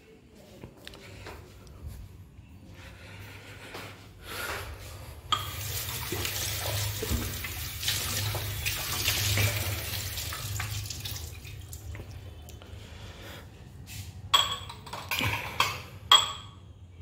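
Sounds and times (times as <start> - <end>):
glass and dishes knocking: 14.3 - 16.6.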